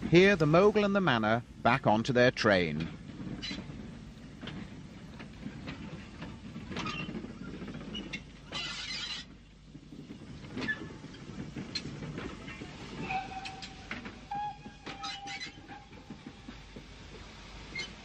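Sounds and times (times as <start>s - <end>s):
steam locomotives rumbling: 0.0s - 18.0s
steam hiss: 8.6s - 18.0s.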